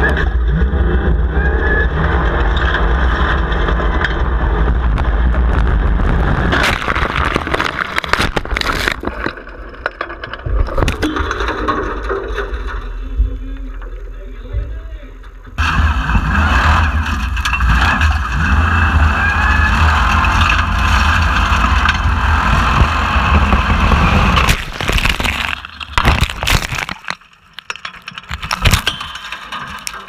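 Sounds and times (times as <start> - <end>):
buggy engine running hard: 0.0 - 6.6, 15.5 - 24.6.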